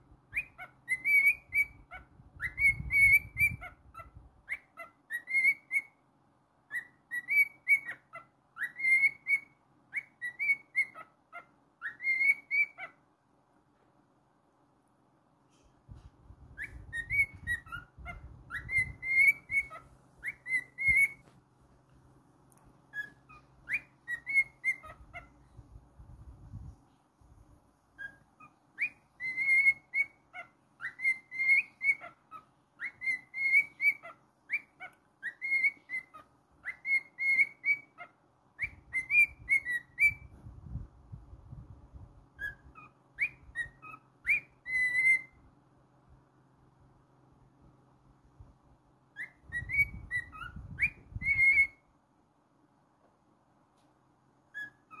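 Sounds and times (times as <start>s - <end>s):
cockatiel whistling: 0.3s - 6.0s, 6.7s - 13.0s, 16.4s - 21.4s, 22.9s - 25.7s, 28.0s - 40.4s, 42.3s - 45.5s, 49.1s - 51.9s, 54.5s - 55.0s
faint low rumble: 12.4s - 37.2s, 38.0s - 55.0s.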